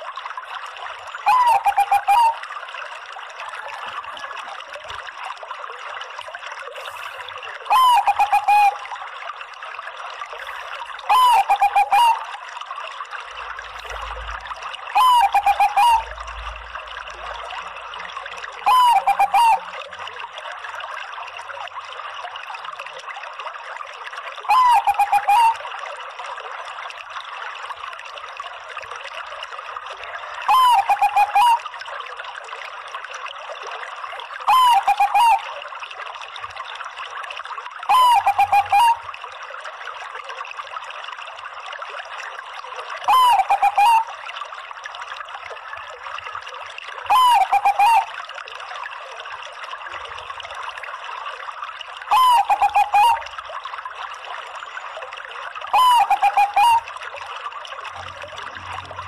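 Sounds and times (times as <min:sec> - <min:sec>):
trickling hiss: 0:06.6 - 0:07.4
dove cooing: 0:11.1 - 0:12.2, 0:15.0 - 0:16.0, 0:18.7 - 0:19.6, 0:30.5 - 0:31.6, 0:37.9 - 0:39.0, 0:43.1 - 0:44.0, 0:47.1 - 0:48.1, 0:52.1 - 0:53.2, 0:55.8 - 0:56.8.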